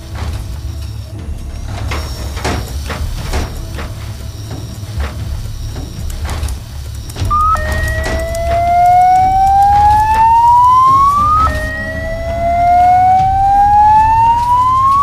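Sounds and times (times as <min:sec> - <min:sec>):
low hum: 0:03.1 - 0:15.0
electronic power-up whine: 0:07.3 - 0:15.0.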